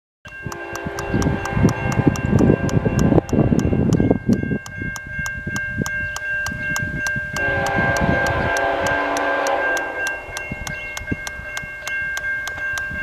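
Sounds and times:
level-crossing warning bell ringing: 0.3 - 13.0
train air horn chord: 0.4 - 3.8, 7.3 - 10.4
low rumbling noise: 0.5 - 5.8, 6.8 - 11.3.

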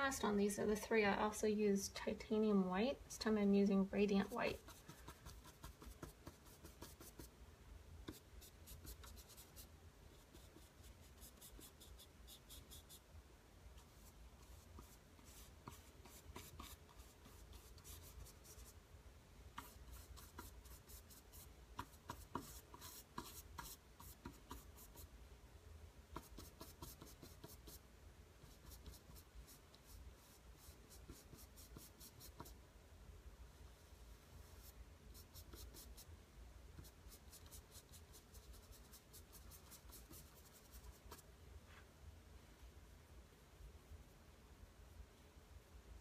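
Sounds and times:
paintbrush scratchy strokes: 4.2 - 7.3, 8.1 - 13.0, 13.8 - 18.8, 19.6 - 25.1, 33.6 - 36.1, 36.8 - 41.9.

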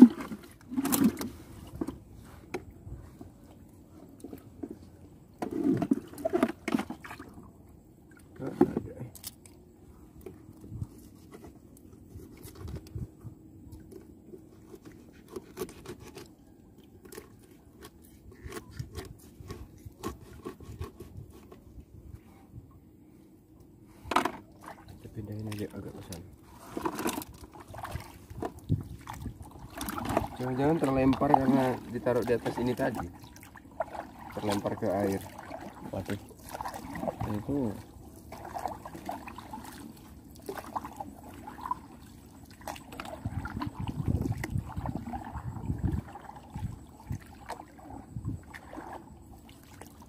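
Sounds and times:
scraping and knocks of handling: 26.5 - 27.4.

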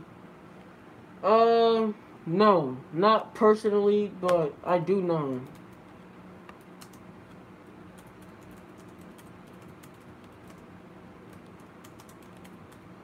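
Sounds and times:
low electrical hum: 0.0 - 13.0
typing on a keyboard: 5.3 - 5.8, 6.8 - 7.0, 8.0 - 10.6, 11.3 - 12.8.

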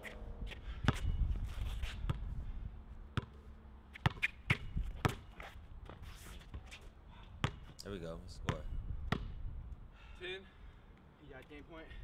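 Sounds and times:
basketball bouncing on hard court: 3.2 - 3.4, 4.0 - 5.3, 7.4 - 7.7, 8.5 - 9.4.

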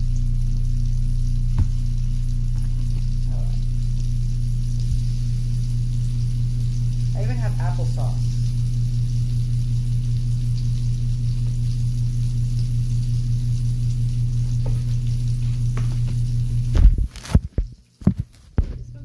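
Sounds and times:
low hum: 0.0 - 17.1
food sizzling in oil: 0.0 - 18.0
spatula knocking on pan: 1.6 - 1.8.

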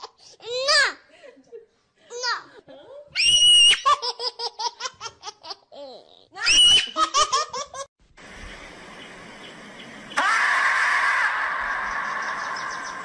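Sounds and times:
steady hiss: 8.0 - 10.2.

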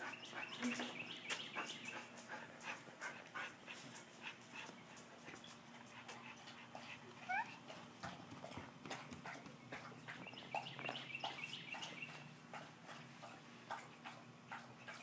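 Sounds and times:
dog panting: 0.0 - 15.0
dog whining: 7.2 - 7.6.

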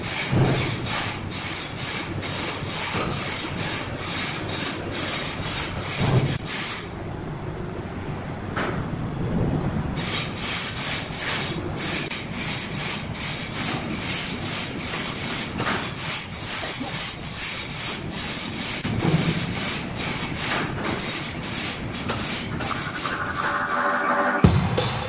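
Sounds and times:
rhythmic scraping on wood: 10.8 - 24.3.

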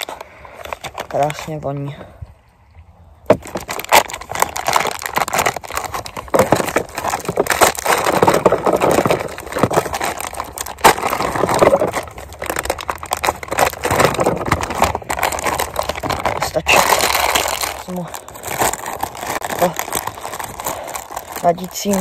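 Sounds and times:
plastic bag crinkling: 0.0 - 1.9, 3.3 - 22.0.

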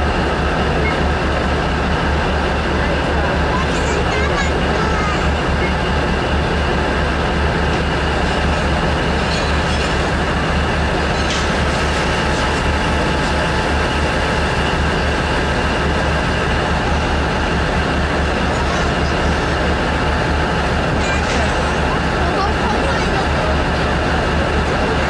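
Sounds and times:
locomotive machinery low drone: 0.0 - 25.0.

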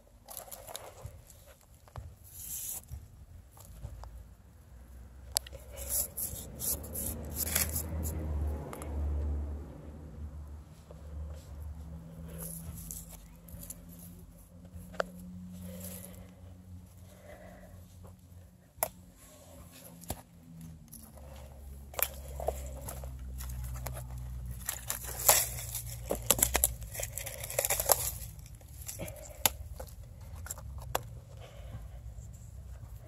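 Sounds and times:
twigs snapping: 21.9 - 31.1.

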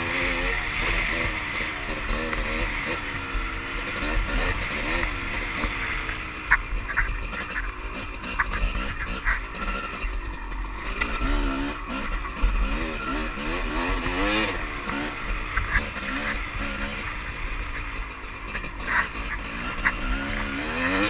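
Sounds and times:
dirt bike engine revving: 0.0 - 21.0.

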